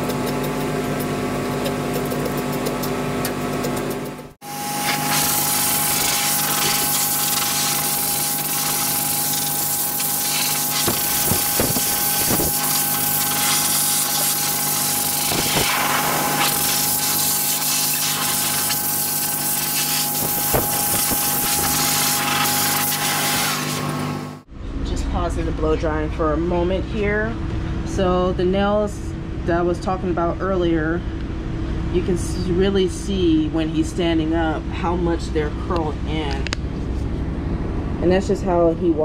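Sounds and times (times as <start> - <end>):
blow dryer rushing air: 4.4 - 24.5.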